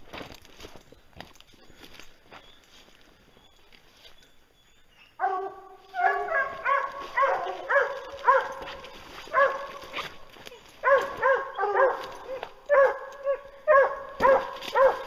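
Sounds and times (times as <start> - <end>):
hound baying: 5.0 - 15.0
dog barking: 5.2 - 10.2, 10.8 - 15.0.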